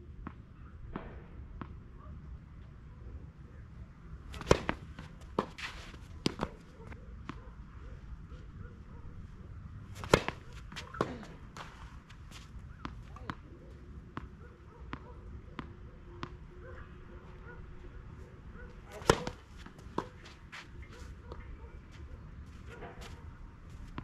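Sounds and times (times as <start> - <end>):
racket hitting tennis ball: 4.3 - 7.4, 9.8 - 13.4, 18.9 - 20.6
tennis ball bouncing on clay: 4.3 - 7.5, 9.8 - 16.4, 18.8 - 20.5.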